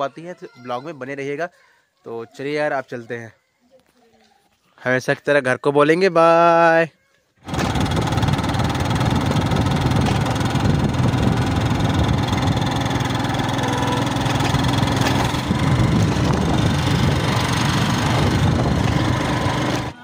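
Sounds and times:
road noise: 7.4 - 20.0
vehicle engine running: 7.4 - 20.0.

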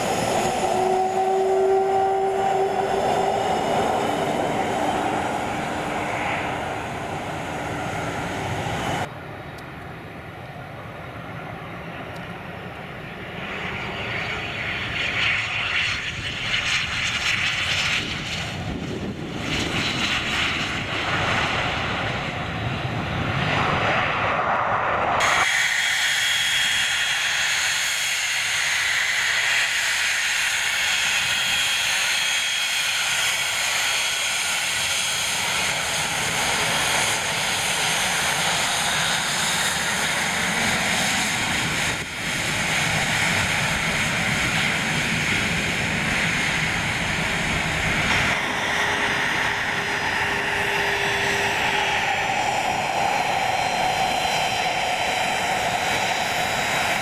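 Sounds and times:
distant jet engine noise: 0.0 - 57.0
jet engines idling with high whine: 0.0 - 57.0
wind on microphone: 15.5 - 57.0.

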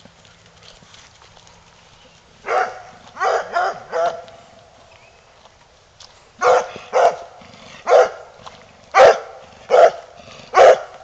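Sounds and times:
dog barking: 2.4 - 4.3, 6.4 - 8.3, 9.0 - 11.0.

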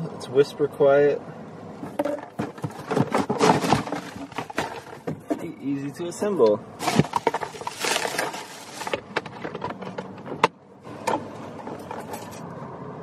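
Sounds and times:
clicks and knocks of fan parts: 1.8 - 5.5, 6.3 - 12.5
plastic packaging crinkling: 6.8 - 9.0.

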